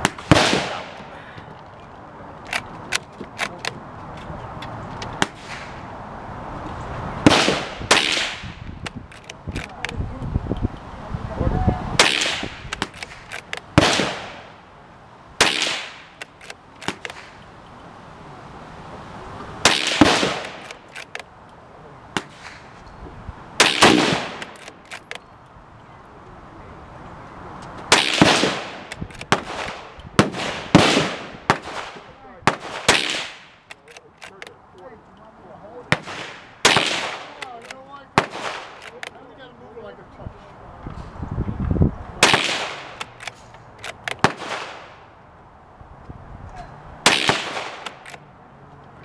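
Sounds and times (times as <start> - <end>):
loud gunshots with echo: 0.2 - 1.0, 7.2 - 8.5, 13.8 - 14.5, 23.6 - 24.6, 27.9 - 33.5, 42.2 - 43.0.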